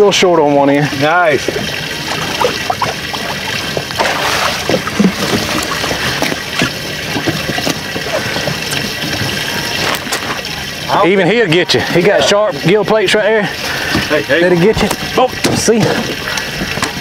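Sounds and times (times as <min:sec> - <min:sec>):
wind and water noise: 0:00.0 - 0:17.0
fish splashing in water: 0:01.1 - 0:10.9.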